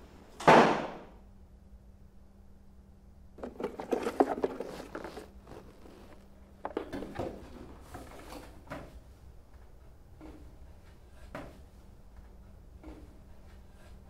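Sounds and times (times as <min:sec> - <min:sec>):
cardboard package rustling: 0:03.4 - 0:08.5.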